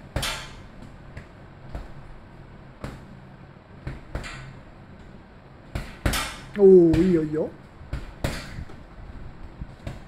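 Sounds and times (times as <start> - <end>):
boxing gloves striking punching ball: 0.0 - 2.1, 2.8 - 3.2, 3.8 - 4.6, 5.6 - 8.8, 9.7 - 10.0.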